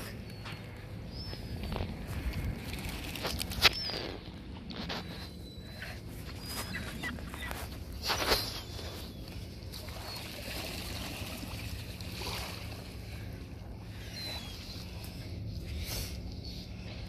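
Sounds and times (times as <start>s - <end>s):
feet splashing in water: 9.7s - 13.4s.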